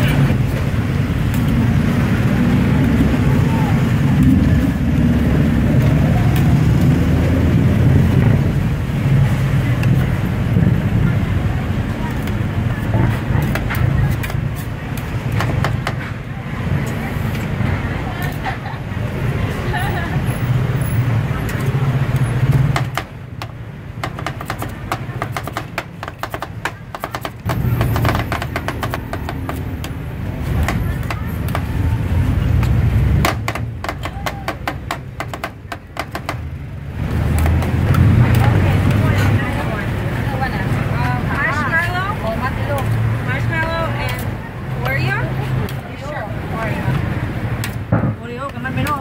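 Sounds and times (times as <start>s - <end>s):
steady low rumble: 0.0s - 21.3s.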